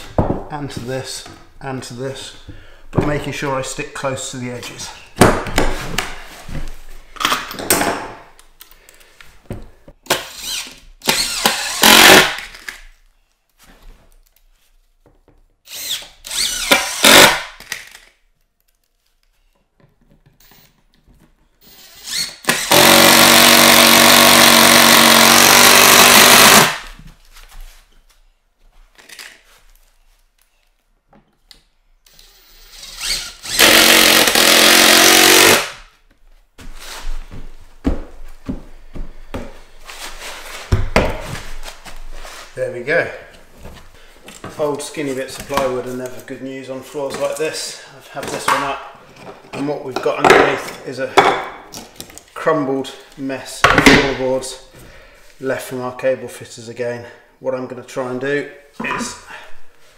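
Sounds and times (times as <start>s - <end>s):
cordless drill driving screws: 10.1s - 12.4s, 15.7s - 18.0s, 21.6s - 26.9s, 32.0s - 35.8s.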